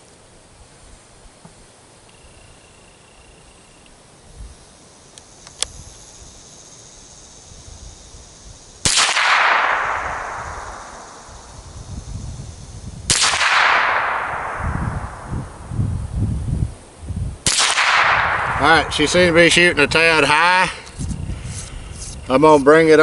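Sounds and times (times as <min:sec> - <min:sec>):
rifle shot: 0:08.8 - 0:11.5, 0:13.1 - 0:15.3, 0:17.4 - 0:19.2.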